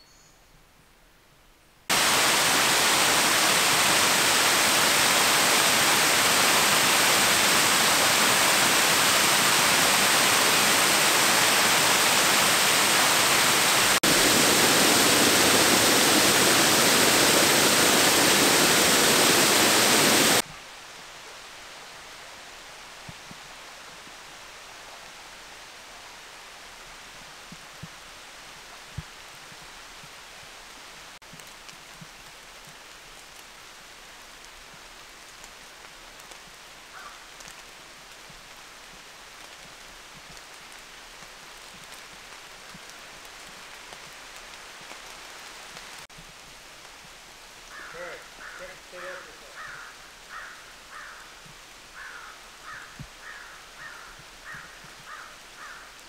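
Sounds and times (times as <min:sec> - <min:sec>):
waterfall rushing: 0:01.9 - 0:20.4
faint rush of water: 0:01.9 - 0:56.0.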